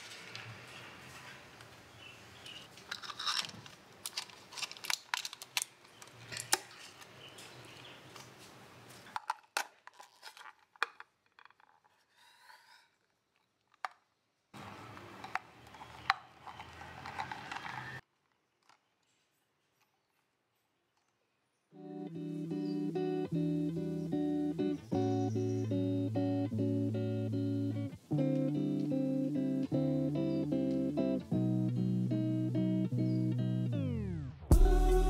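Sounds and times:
paper crinkling: 2.7s - 13.8s, 14.6s - 19.4s
plastic lid crackling and clicking: 2.9s - 7.1s, 9.1s - 11.9s, 14.9s - 18.0s.

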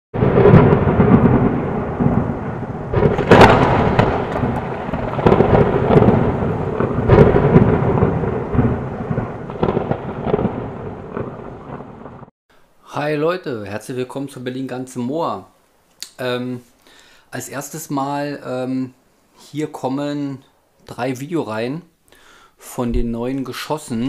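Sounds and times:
rain: 0.2s - 12.3s
rolling thunder: 0.2s - 12.3s.

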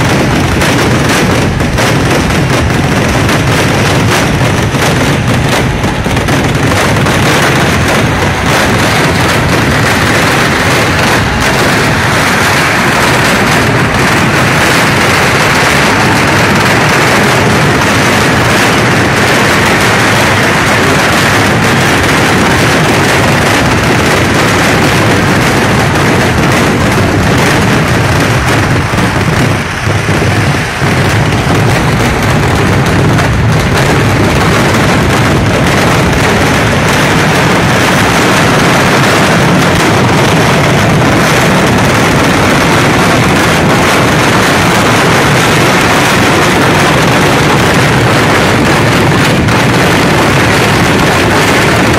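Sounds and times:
firecrackers exploding rapidly: 0.0s - 51.9s.

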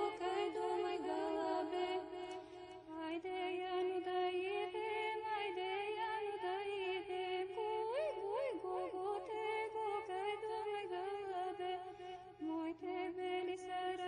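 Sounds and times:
slow chant-like melody: 0.0s - 14.0s.

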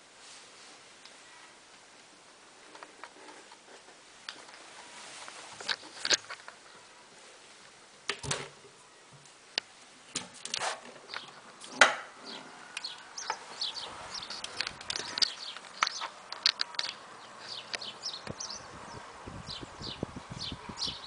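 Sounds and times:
small birds chirping: 10.5s - 21.0s.

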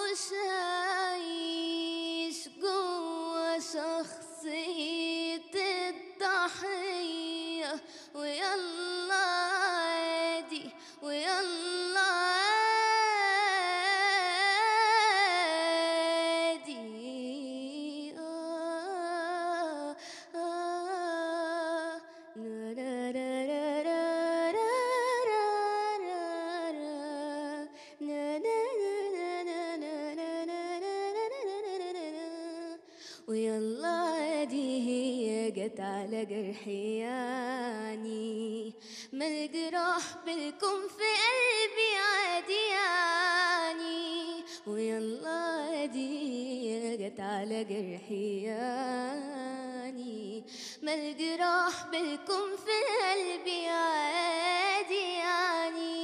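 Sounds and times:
singer breathing: 7.8s - 8.2s, 10.7s - 11.0s, 20.0s - 20.4s, 32.8s - 33.3s, 38.8s - 39.2s, 50.5s - 50.9s.

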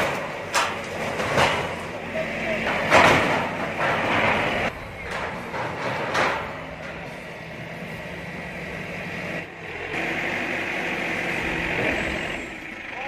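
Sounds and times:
diesel engine running: 0.0s - 13.0s.

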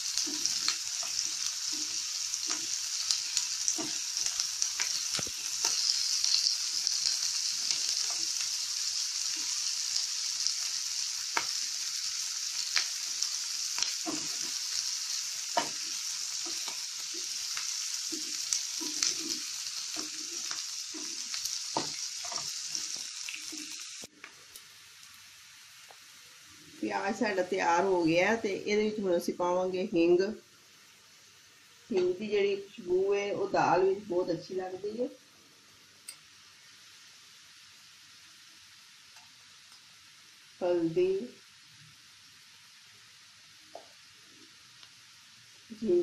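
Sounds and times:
onions sizzling in hot oil: 0.0s - 46.0s
spatula scraping and tapping pan: 0.2s - 2.8s, 3.7s - 5.9s, 13.8s - 14.7s, 15.5s - 17.3s, 18.0s - 23.8s.

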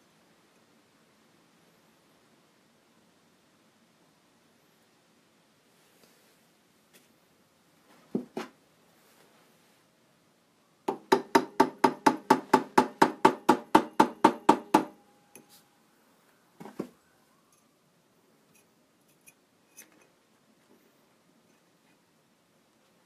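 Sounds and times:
small hammer tapping metal wire: 10.9s - 15.5s.

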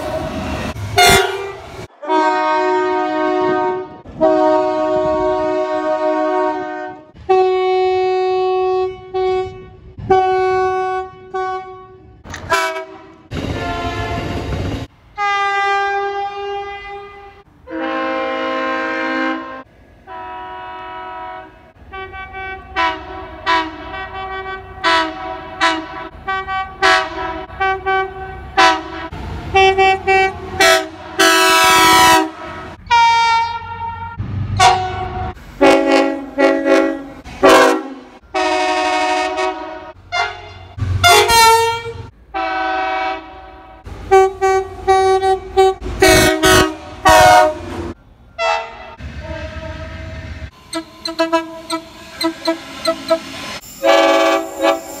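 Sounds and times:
train horn short chord toots: 1.0s - 14.4s, 48.4s - 55.0s
train horn long blasts: 1.0s - 14.6s, 15.2s - 55.0s.

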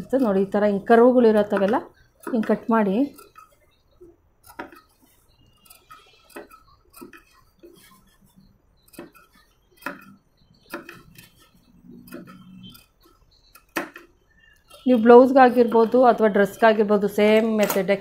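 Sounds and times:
shears snipping fabric: 0.0s - 3.6s, 4.4s - 12.9s.

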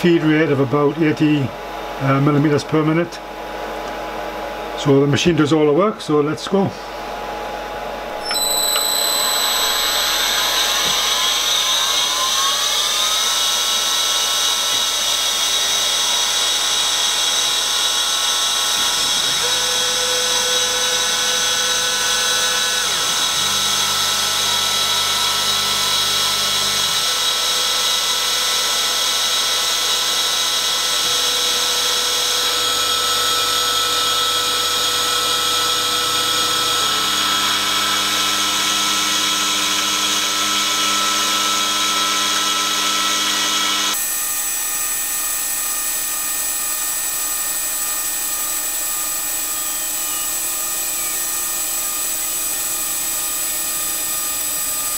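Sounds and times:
milling machine spindle whine: 7.8s - 54.9s
low motor hums changing pitch: 8.0s - 13.5s.

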